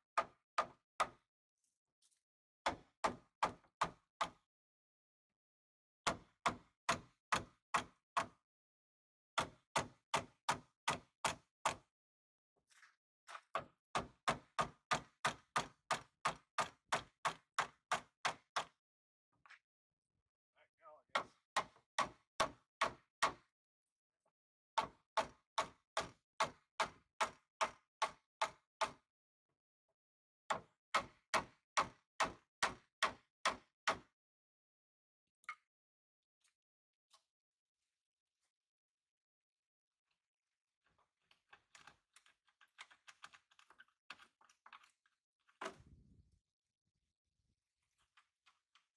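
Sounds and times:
hammer knocking on wooden block: 21.2s - 23.4s.

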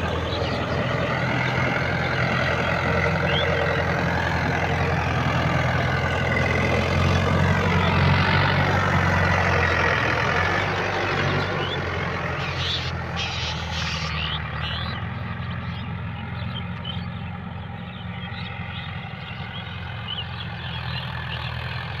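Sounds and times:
bird chirps: 0.0s - 4.4s, 9.6s - 21.9s
tractor diesel engine running: 0.0s - 22.0s.

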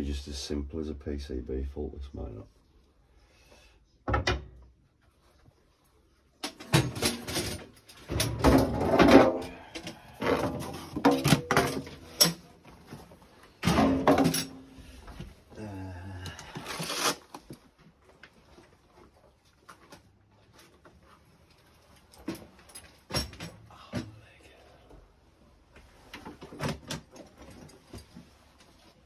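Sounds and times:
knocks and clatter of objects: 6.4s - 14.8s, 21.9s - 24.2s.

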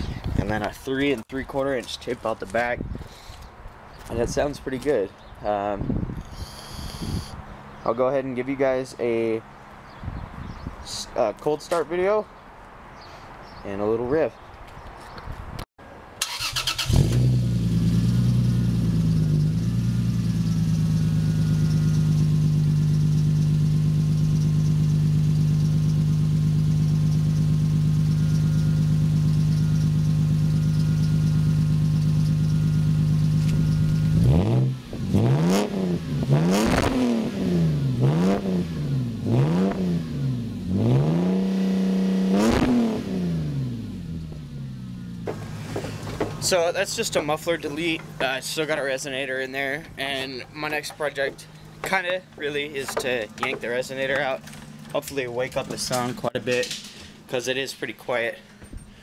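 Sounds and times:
car engine starting and idling: 16.2s - 41.0s, 41.7s - 57.0s
car engine revving: 16.2s - 46.6s.

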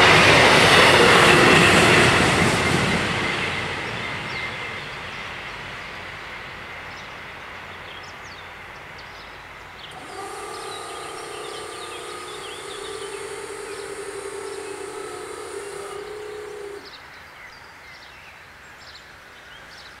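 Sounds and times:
birds chirping: 9.8s - 17.0s
barrier motors whining: 9.9s - 16.9s.

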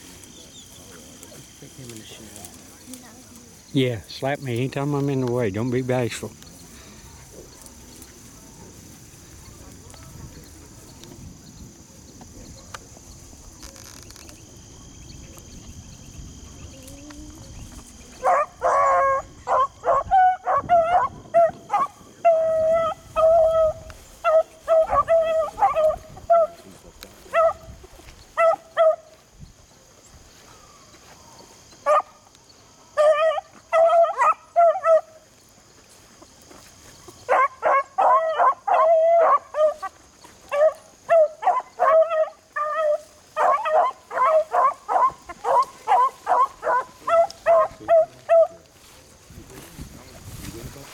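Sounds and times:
beagles baying: 18.1s - 26.7s, 27.3s - 29.2s, 31.8s - 32.2s, 32.8s - 35.2s, 37.1s - 48.7s.

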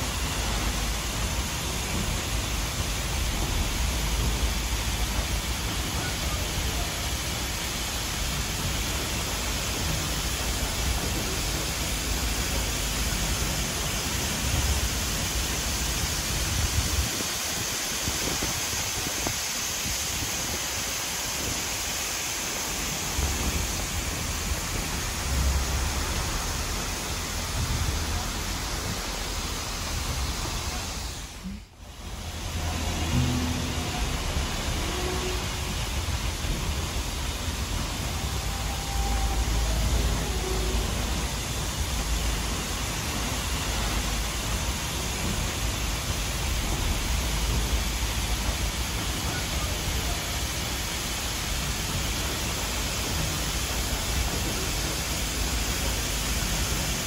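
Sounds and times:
air rushing past train window: 0.0s - 57.0s
train running noise: 0.0s - 57.0s
low rumbling gusts: 0.2s - 5.9s, 22.7s - 49.2s.

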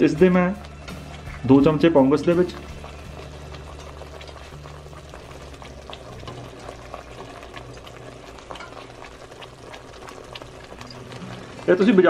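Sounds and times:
thick sauce bubbling in a pan: 0.1s - 12.0s.

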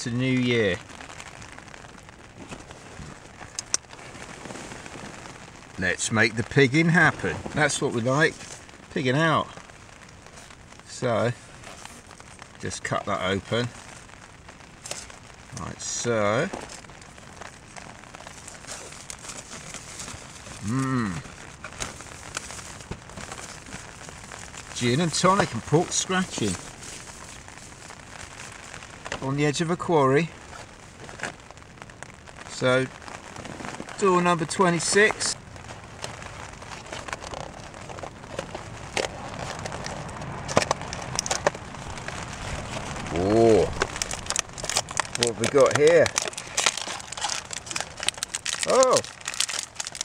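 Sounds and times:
faint hiss: 0.0s - 49.8s
snack packet crinkling: 14.8s - 29.2s, 33.4s - 50.0s
cardboard tearing clicks and crackles: 16.4s - 27.5s, 34.8s - 50.0s
man humming: 20.6s - 21.3s.

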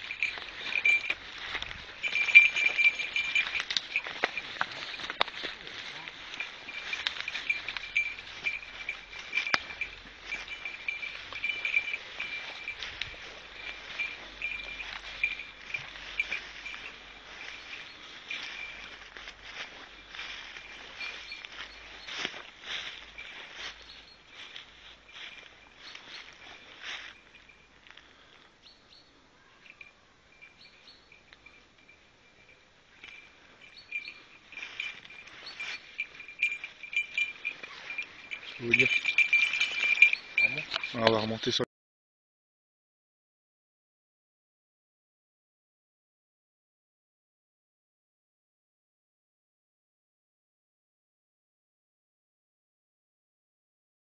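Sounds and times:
high ringing tone: 0.0s - 27.8s, 29.5s - 41.3s
dog bell jingling: 0.0s - 28.3s, 29.5s - 41.6s
footsteps crunching through dry leaves: 0.0s - 28.3s, 33.0s - 41.4s.

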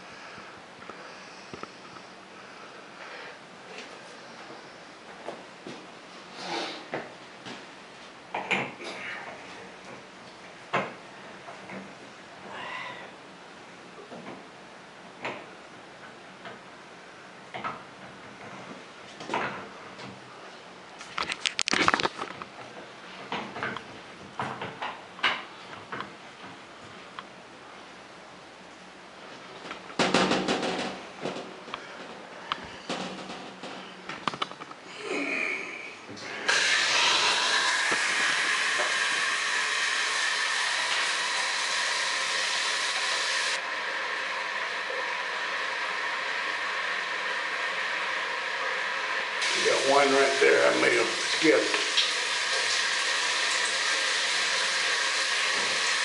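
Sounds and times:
shower spraying onto tiles: 36.5s - 43.6s, 49.4s - 56.0s.

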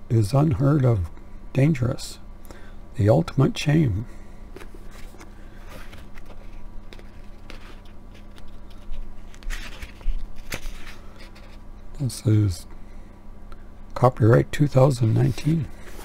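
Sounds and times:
book pages turning: 4.6s - 11.6s, 14.9s - 16.0s.

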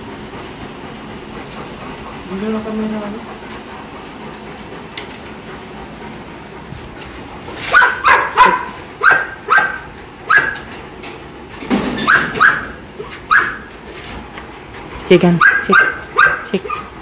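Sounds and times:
dogs barking: 7.4s - 10.8s, 12.0s - 14.2s, 15.2s - 17.0s.

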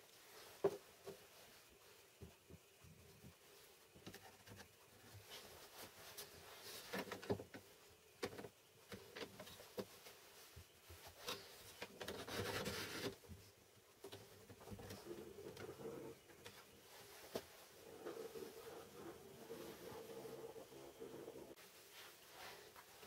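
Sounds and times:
wood rubbing and scraping: 11.0s - 13.2s, 14.1s - 21.6s.

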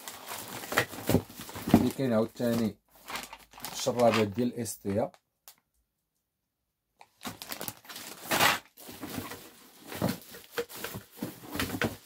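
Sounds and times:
plastic bag crinkling: 0.0s - 4.5s, 7.1s - 12.0s.

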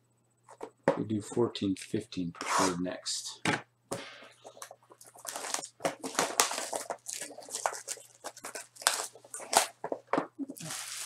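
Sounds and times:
wrapper crinkling and tearing: 5.0s - 11.0s.

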